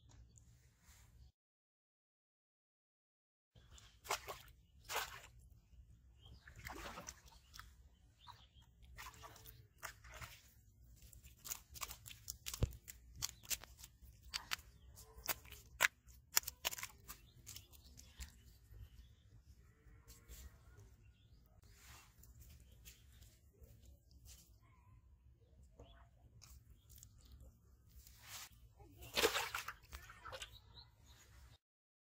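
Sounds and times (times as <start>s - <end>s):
fish flopping on muddy ground: 8.8s - 18.8s, 28.0s - 30.6s.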